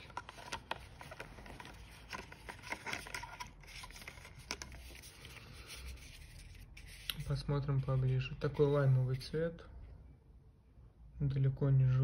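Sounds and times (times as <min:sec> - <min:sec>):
plastic packaging crinkling: 0:00.0 - 0:07.3.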